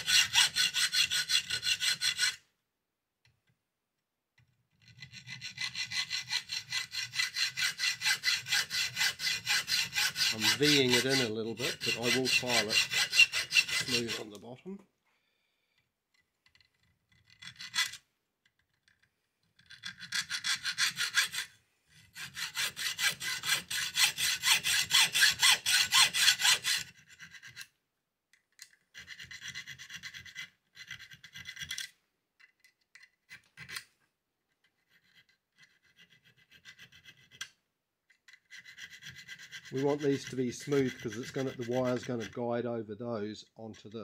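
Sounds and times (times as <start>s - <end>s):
hacksaw cutting metal: 0.0s - 2.4s, 4.8s - 14.4s, 19.6s - 27.7s, 38.4s - 42.4s.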